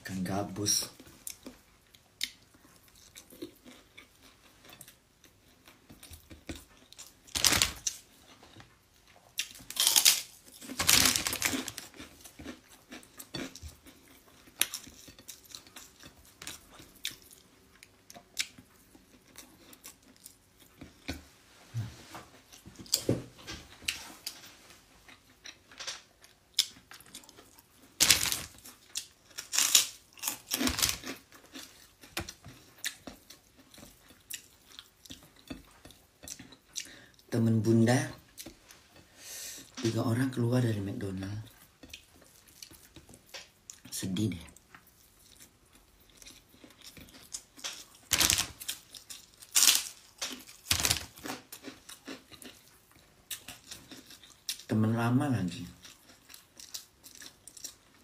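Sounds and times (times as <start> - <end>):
person chewing: 0.9 - 23.2, 23.8 - 37.3, 41.4 - 54.7, 55.6 - 58.0
crunching bites of cracker: 6.3 - 8.1, 9.4 - 15.3, 25.2 - 34.5, 46.2 - 54.7.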